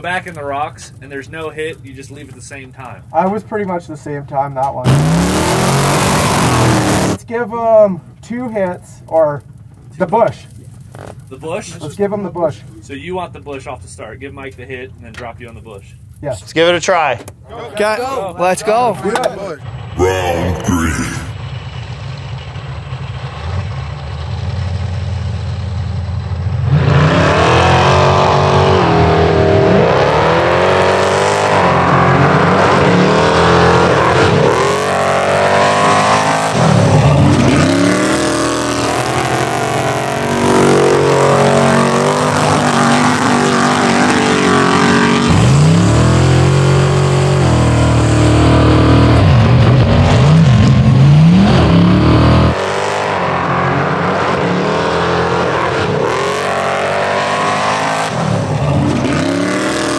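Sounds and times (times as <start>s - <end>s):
race engines revving: 4.5s - 7.2s, 17.8s - 25.0s, 26.2s - 59.9s.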